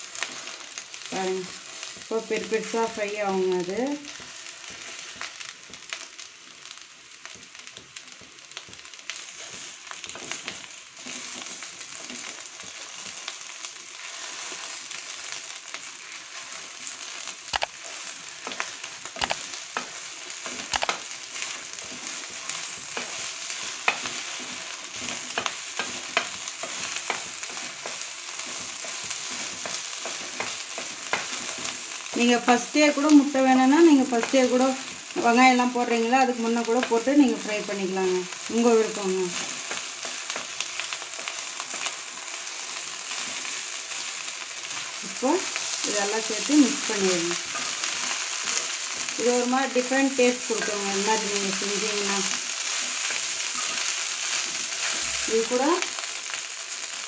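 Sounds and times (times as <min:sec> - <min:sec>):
eggs sizzling in a wok: 0:00.0 - 0:57.0
spatula tapping pan: 0:18.4 - 0:32.3.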